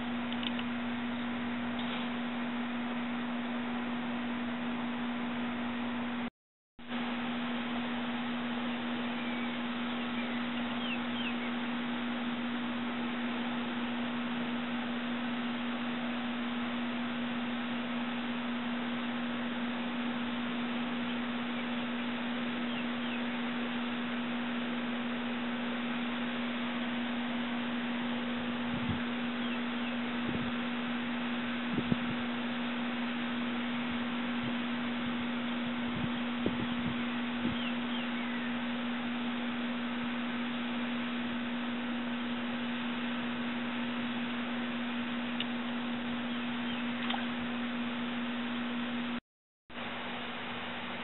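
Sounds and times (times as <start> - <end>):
low-pitched hum: 0.0 - 49.2
soft clicks: 0.3 - 0.7.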